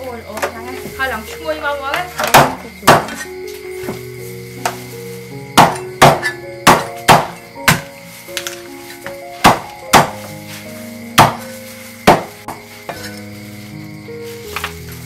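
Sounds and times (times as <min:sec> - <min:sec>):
music: 0:00.0 - 0:15.0
cleaver chopping on wooden board: 0:02.2 - 0:03.2, 0:05.6 - 0:07.9, 0:09.4 - 0:10.2, 0:11.2 - 0:11.4, 0:12.1 - 0:12.6.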